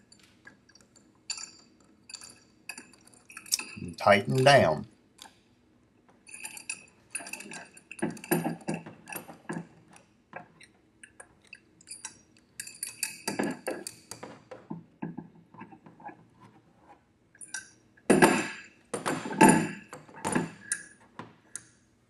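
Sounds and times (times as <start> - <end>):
metal tools clinking and clattering: 6.3 - 9.6.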